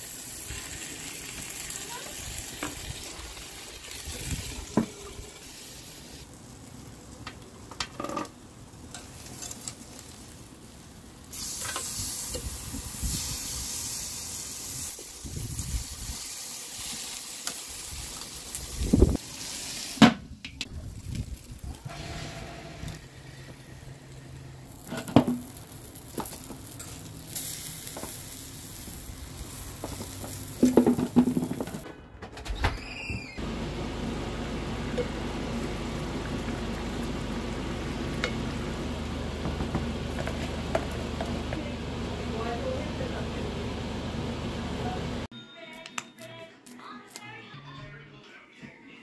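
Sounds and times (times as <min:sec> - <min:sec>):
food sizzling in a pan: 0:00.0 - 0:20.1, 0:20.9 - 0:31.8.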